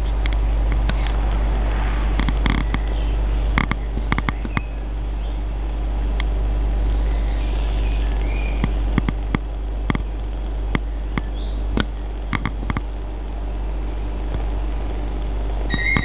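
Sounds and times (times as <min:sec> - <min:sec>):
steady low hum: 0:00.0 - 0:16.0
sharp clicks: 0:02.2 - 0:06.3, 0:08.1 - 0:12.9
kitten squeaks: 0:15.7 - 0:16.0.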